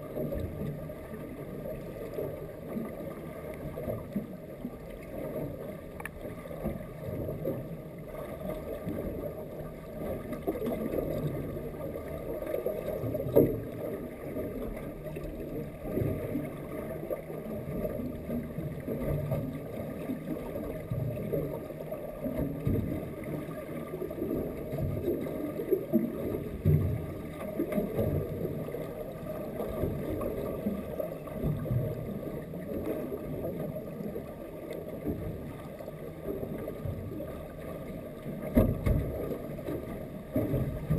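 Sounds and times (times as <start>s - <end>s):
underwater rumble of moving water: 0.0s - 40.9s.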